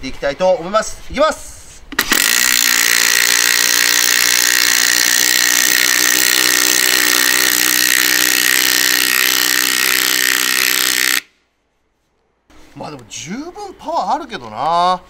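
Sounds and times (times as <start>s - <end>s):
impact wrench hammering: 2.0s - 11.3s.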